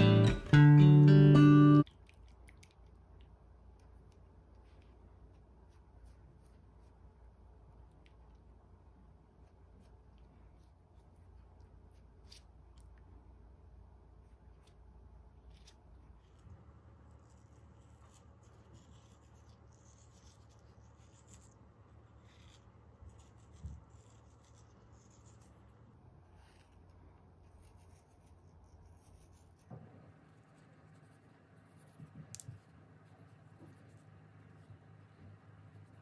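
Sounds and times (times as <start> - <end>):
pastry brush scratchy rubbing: 4.6 - 7.6, 15.3 - 36.0.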